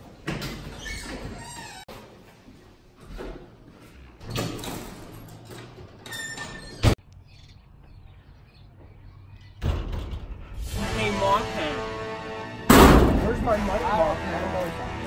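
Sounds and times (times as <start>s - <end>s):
metal door squealing: 0.5s - 1.9s, 6.0s - 7.0s
light bird chirps: 7.0s - 9.6s
door shutting with a bang: 12.7s - 13.6s.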